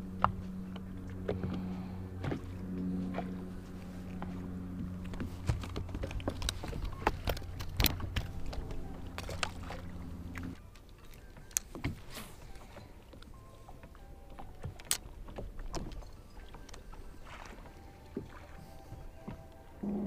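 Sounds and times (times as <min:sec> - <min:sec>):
fishing tackle clicks and knocks: 0:04.1 - 0:09.8, 0:10.4 - 0:17.0.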